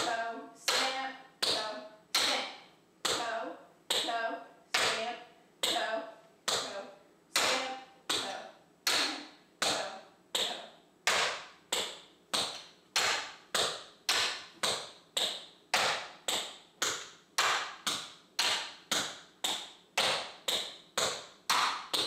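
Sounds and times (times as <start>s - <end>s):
tap shoes on practice board: 6.5s - 6.8s, 7.4s - 22.0s.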